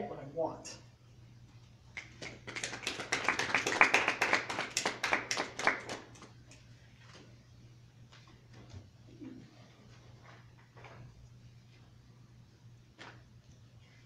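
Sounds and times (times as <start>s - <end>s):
small audience clapping: 1.9s - 6.7s.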